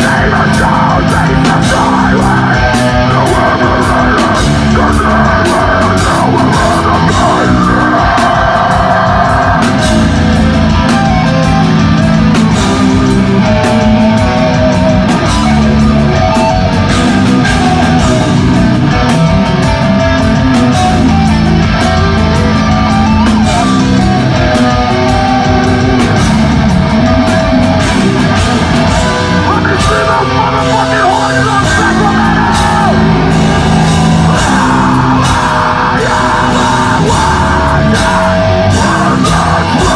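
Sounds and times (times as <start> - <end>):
screamed vocals: 0.0 - 10.1, 29.3 - 39.9
distorted electric guitars: 0.0 - 39.9
fast drum kit: 0.0 - 39.9.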